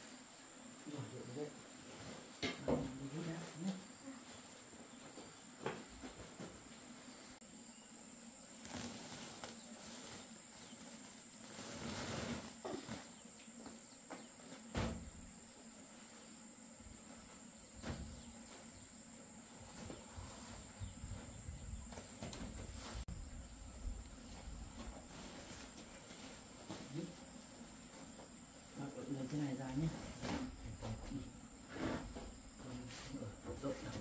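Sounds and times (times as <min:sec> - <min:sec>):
insects trilling: 0:00.0 - 0:34.0
rustle: 0:00.0 - 0:34.0.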